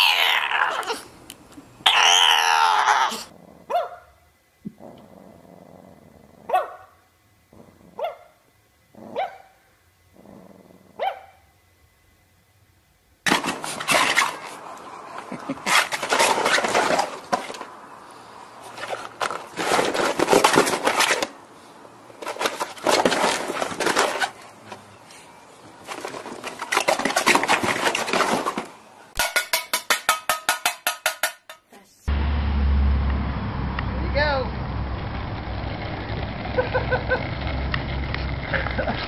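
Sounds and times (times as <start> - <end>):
hard objects clattering: 13.3 - 17.8, 18.7 - 21.4, 22.2 - 24.8, 25.8 - 31.7.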